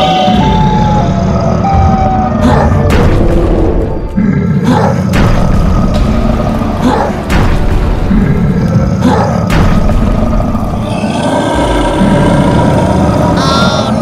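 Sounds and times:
background music: 0.0s - 14.0s
cartoon explosion booms: 5.0s - 8.5s, 9.4s - 10.9s.

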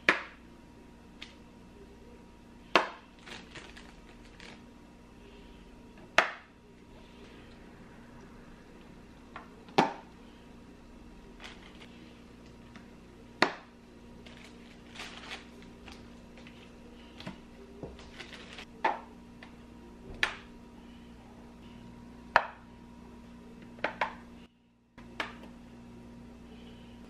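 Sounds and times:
plastic packaging rustling: 3.2s - 4.6s, 11.4s - 12.0s, 14.2s - 18.7s.

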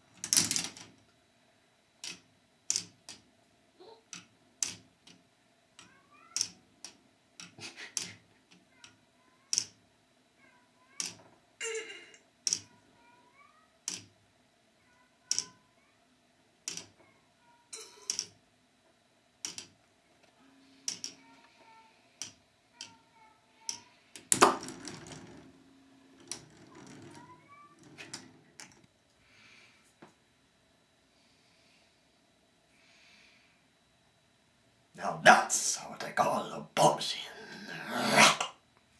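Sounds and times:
balls clattering on plastic: 0.2s - 1.0s, 19.4s - 19.8s, 23.7s - 28.9s.

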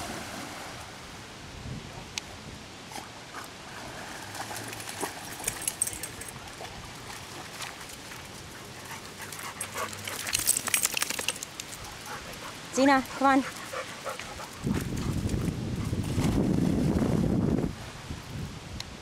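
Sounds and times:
water splashing: 3.6s - 12.6s.

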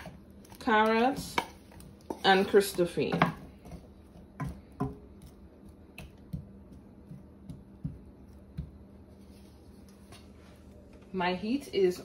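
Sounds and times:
faint steady hum: 0.0s - 12.0s
wooden spoon tapping a pan: 0.8s - 5.2s.

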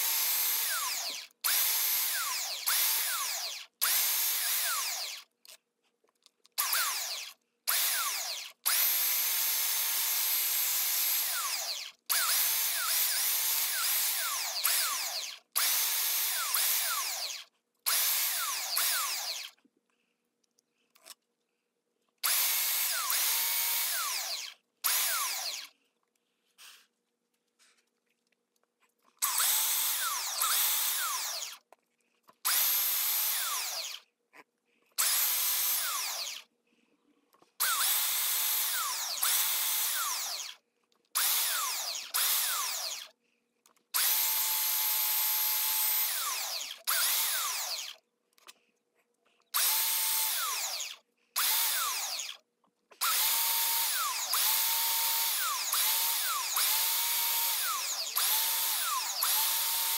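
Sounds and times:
belt sander grinding wood: 53.0s - 59.9s.

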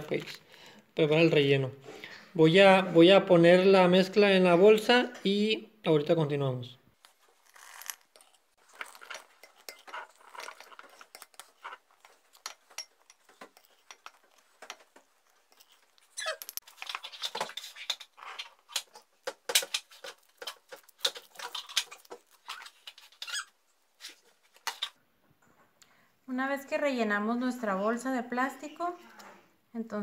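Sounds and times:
spoon scraping glass bowl: 7.0s - 24.9s.

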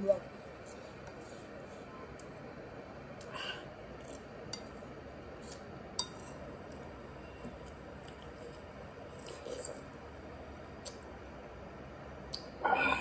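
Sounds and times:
spoon clinking against ceramic bowl: 6.0s - 6.4s.

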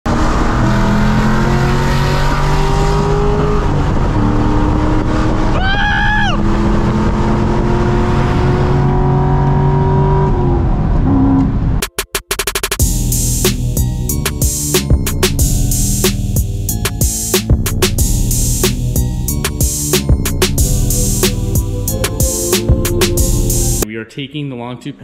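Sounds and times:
car engine accelerating hard: 0.1s - 11.8s
high whine: 11.8s - 23.8s.

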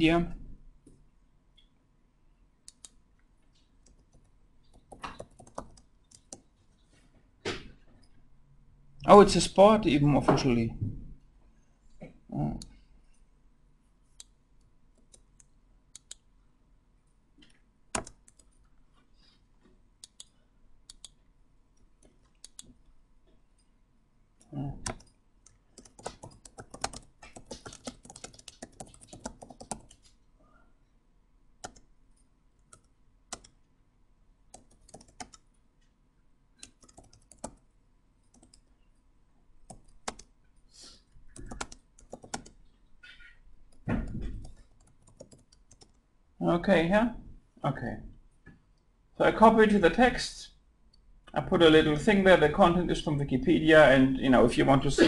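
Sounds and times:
typing on computer keyboard: 3.8s - 6.5s, 17.9s - 18.6s, 24.8s - 30.1s, 31.6s - 31.9s, 32.7s - 33.6s, 34.5s - 35.4s, 36.6s - 37.6s, 38.3s - 38.7s, 39.7s - 40.3s, 41.3s - 42.6s, 43.7s - 46.0s.

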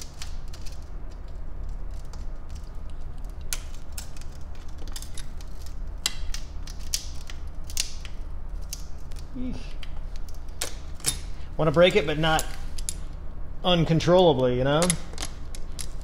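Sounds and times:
glass snapping with ticks and cracks: 0.0s - 11.3s, 14.8s - 16.0s
steady low hum: 0.0s - 16.0s.

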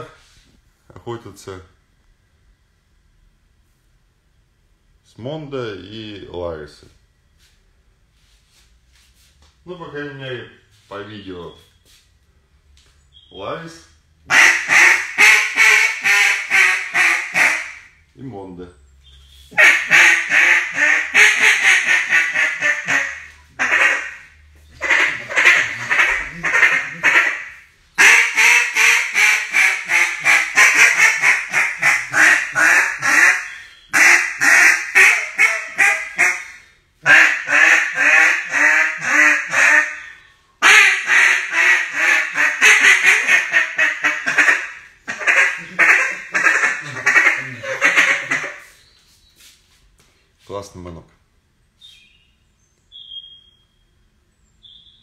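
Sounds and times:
duck call quacking: 14.3s - 17.9s, 19.5s - 48.8s.

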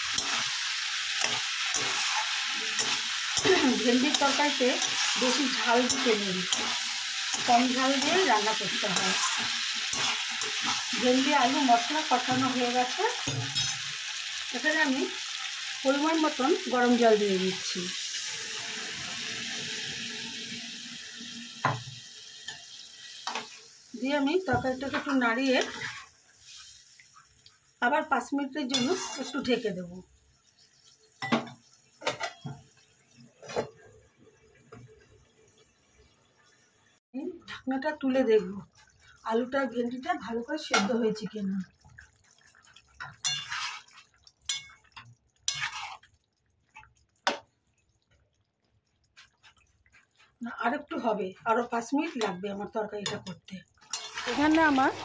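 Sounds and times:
hot water pouring into metal pan: 0.0s - 23.8s, 53.8s - 55.0s
utensils clanking against pan: 1.1s - 14.0s, 22.5s - 23.6s, 28.7s - 29.5s, 31.2s - 32.6s, 43.0s - 43.9s, 44.5s - 46.0s, 53.0s - 55.0s
spatula clinking on pan: 28.7s - 29.2s, 43.0s - 43.7s, 44.5s - 45.8s.

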